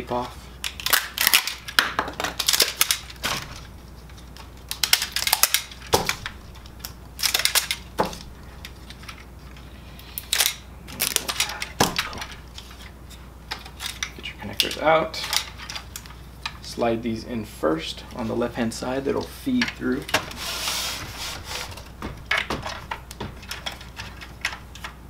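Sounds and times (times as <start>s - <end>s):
tape peeling off crackling: 0.6s - 14.1s, 20.0s - 24.9s.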